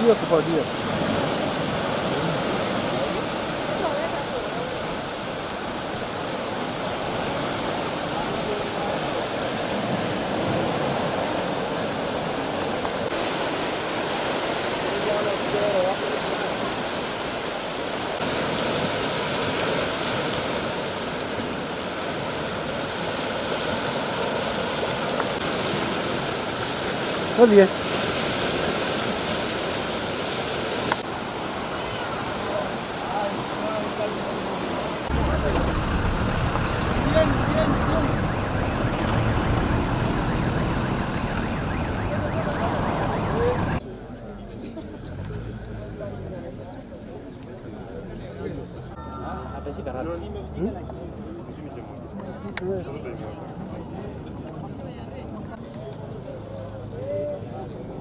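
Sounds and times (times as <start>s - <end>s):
floodwater rushing in rapids: 0.0s - 49.0s
dense background rush: 31.8s - 58.0s
siren yelping: 37.6s - 43.8s.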